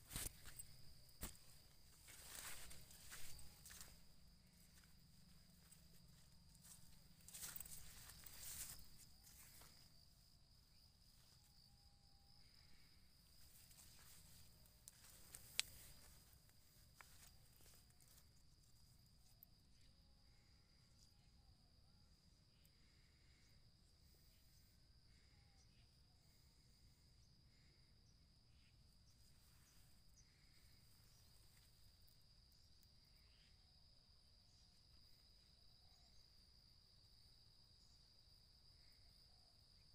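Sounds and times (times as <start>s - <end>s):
high-pitched insect drone: 0.0s - 10.4s.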